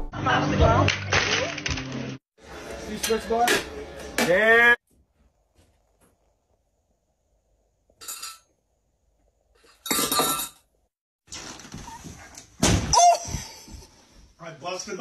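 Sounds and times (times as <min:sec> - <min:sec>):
glass clinking: 0:08.0 - 0:08.5, 0:09.8 - 0:10.7.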